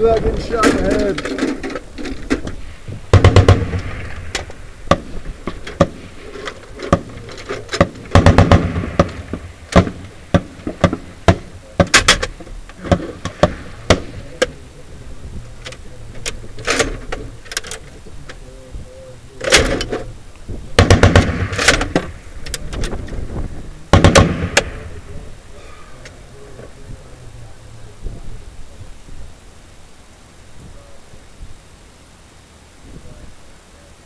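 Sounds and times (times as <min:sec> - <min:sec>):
rapid loud bangs: 0:00.2 - 0:14.7, 0:20.7 - 0:25.2
metallic clanks of reloading: 0:15.6 - 0:17.9, 0:19.4 - 0:20.1.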